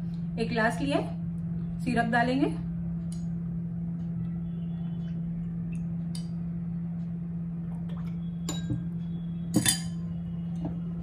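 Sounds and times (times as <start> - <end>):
steady low hum: 0.0 - 11.0
spoon clinking against glass: 8.5 - 8.9, 9.5 - 10.1.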